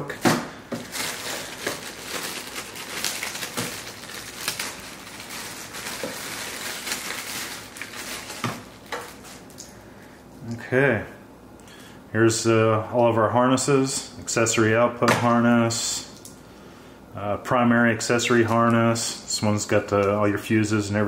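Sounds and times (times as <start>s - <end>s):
plastic bags crinkling: 0.6s - 9.8s.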